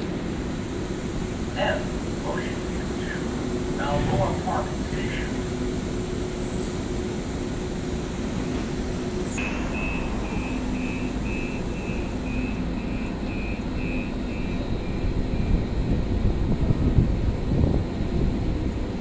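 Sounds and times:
train humming: 0.0s - 19.0s
door warning beeps: 9.4s - 15.6s.

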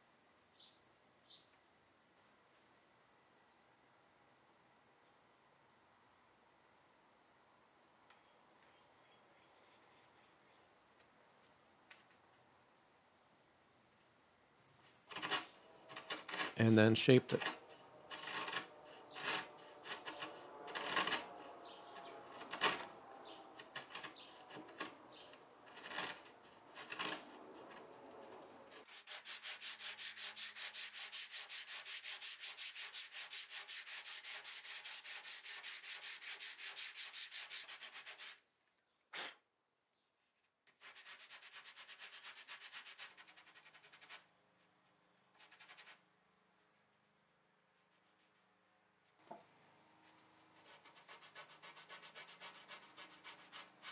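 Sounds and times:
file scraping wood: 15.1s - 38.4s, 50.0s - 53.9s
sanding block strokes: 17.3s - 38.4s, 40.8s - 44.3s, 45.4s - 46.0s, 50.0s - 53.9s.

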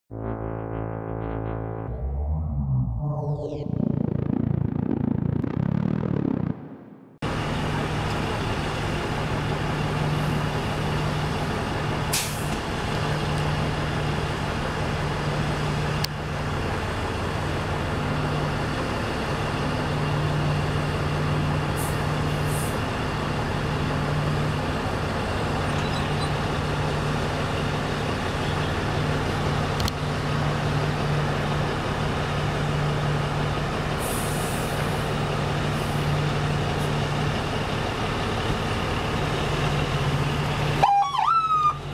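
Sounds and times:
diesel engine droning: 0.0s - 41.9s
air brake hisses: 12.1s - 12.6s, 34.0s - 35.1s.

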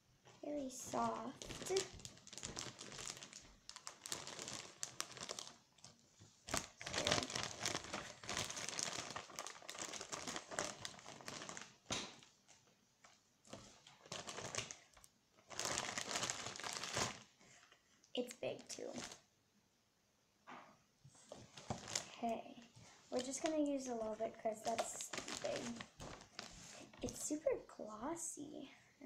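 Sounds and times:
plastic bag crinkling: 0.6s - 17.3s, 18.2s - 19.3s, 21.2s - 27.4s.

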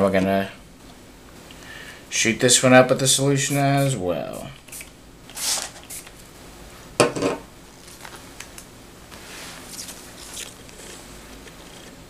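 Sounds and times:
spray bottle squirting: 4.6s - 6.1s.

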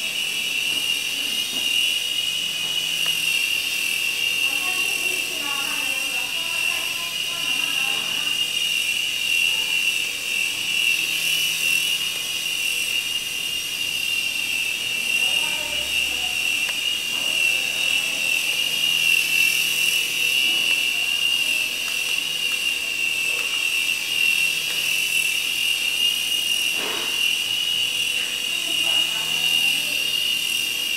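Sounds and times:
toy helicopter whine: 0.0s - 30.9s.

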